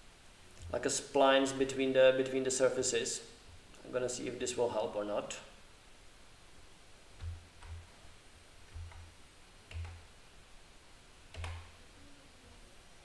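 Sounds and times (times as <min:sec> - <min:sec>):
computer mouse clicks: 0:09.7 - 0:10.0, 0:11.3 - 0:11.7.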